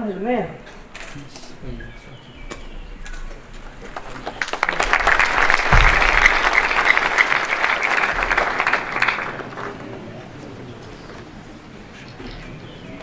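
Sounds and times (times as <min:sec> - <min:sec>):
audience applauding: 0:03.7 - 0:10.9
low thump: 0:05.5 - 0:07.0.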